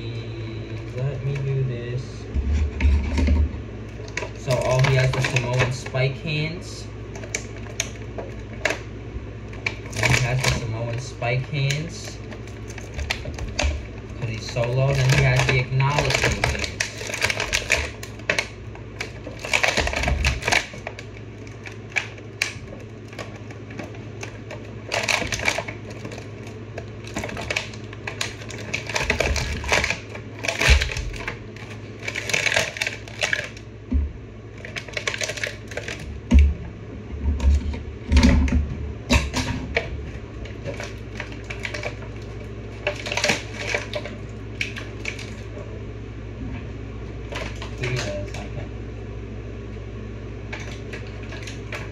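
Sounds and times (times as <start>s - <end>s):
packaging crinkling and clicking: 3.9s - 6.1s, 7.1s - 33.7s, 34.5s - 36.5s, 37.4s - 45.5s, 47.3s - 48.4s.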